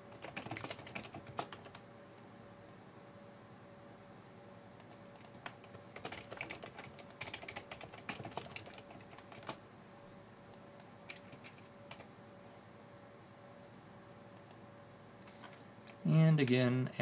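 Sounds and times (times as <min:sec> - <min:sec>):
typing on computer keyboard: 0:00.1 - 0:01.8, 0:04.8 - 0:09.6, 0:10.8 - 0:12.1.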